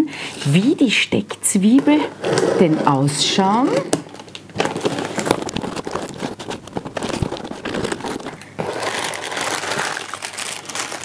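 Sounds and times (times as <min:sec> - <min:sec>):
packing paper rustling: 0:04.1 - 0:11.0.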